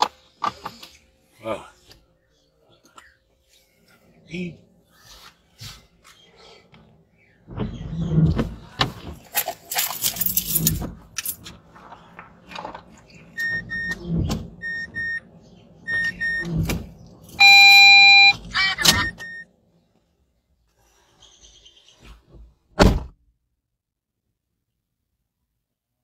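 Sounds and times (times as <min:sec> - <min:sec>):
loud steady tone: 0:17.4 - 0:19.4
short high electronic beeps: 0:17.4 - 0:19.4.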